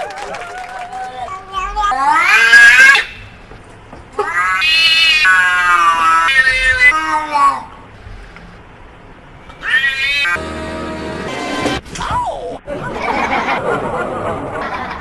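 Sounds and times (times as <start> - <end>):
cat meowing: 4.2 - 7.6, 9.6 - 10.4.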